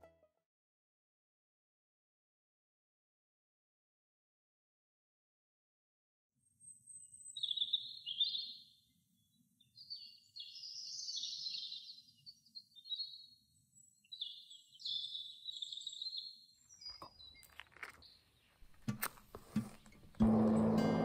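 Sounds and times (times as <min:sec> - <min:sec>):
songbird trilling: 0:06.6 - 0:08.6.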